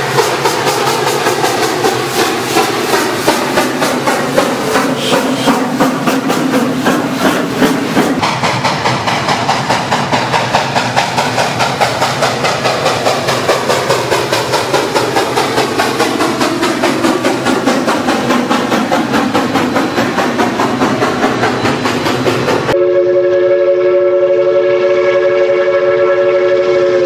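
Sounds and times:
steam hiss: 0.0 - 22.8
steam locomotive chuffing: 0.0 - 27.0.

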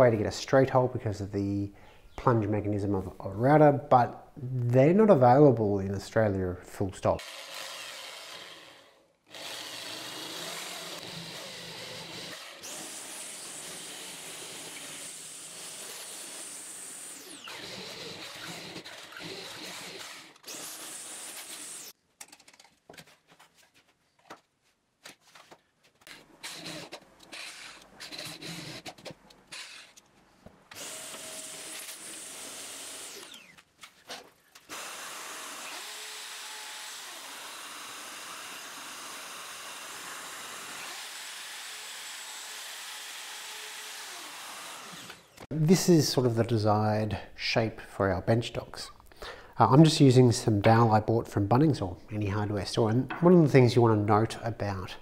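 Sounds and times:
cordless drill boring into wood: 7.2 - 22.0, 26.4 - 30.0, 30.7 - 33.6, 34.7 - 45.5.

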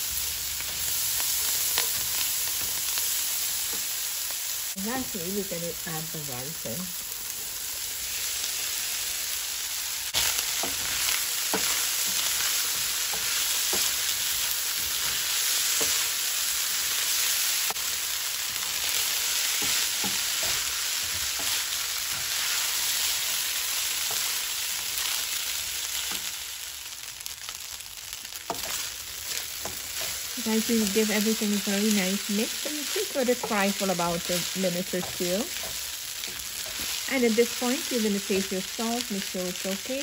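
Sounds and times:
rice sizzling in hot oil: 0.0 - 40.0
spoon stirring and scraping pan: 0.6 - 4.0, 10.1 - 26.6, 28.3 - 38.2.

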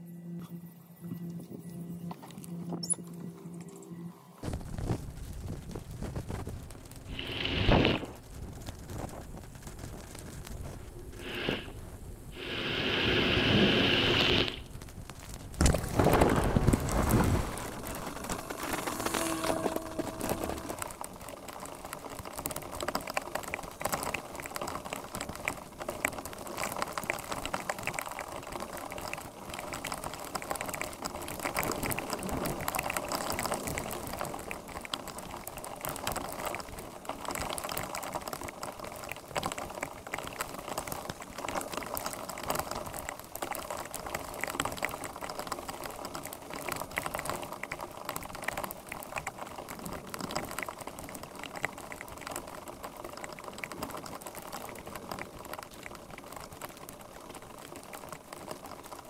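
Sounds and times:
heavy rain on road: 4.4 - 59.0
water gurgling into drain: 7.1 - 8.2.

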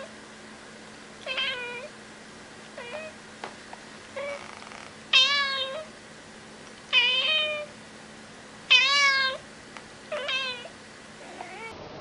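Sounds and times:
cat meowing: 1.2 - 1.9, 2.8 - 3.2, 4.2 - 5.9, 8.7 - 9.4, 10.1 - 11.8.

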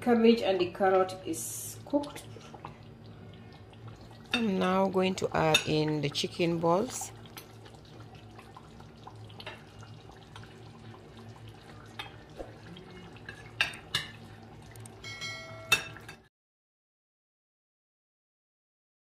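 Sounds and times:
metal spoon clinking against pot: 15.0 - 16.2.

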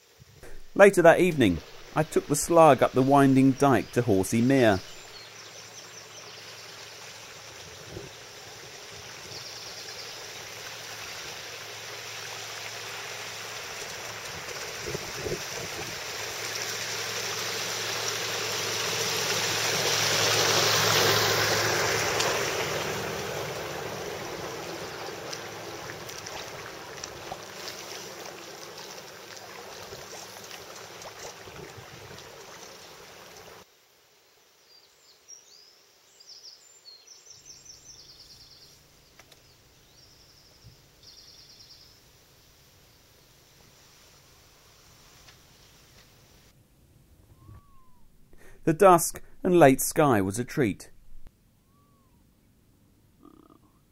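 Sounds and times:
water rushing: 0.0 - 33.7, 48.4 - 50.8
wind noise: 14.3 - 16.2
faint high chirps: 47.3 - 48.2.

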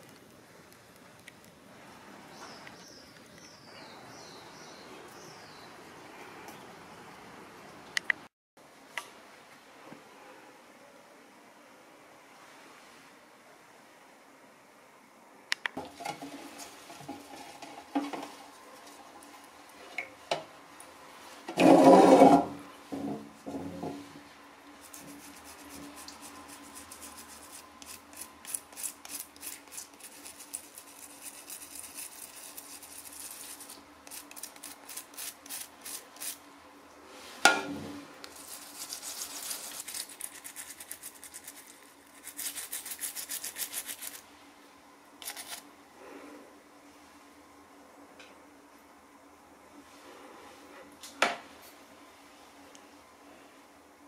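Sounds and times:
brush scrubbing wet shell: 24.1 - 36.4, 38.2 - 44.3, 45.2 - 45.6.

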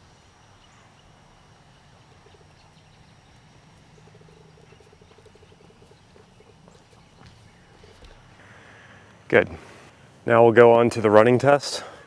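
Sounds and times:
animal pulsing trill: 0.0 - 8.7
faint outdoor ambience: 0.0 - 12.0.

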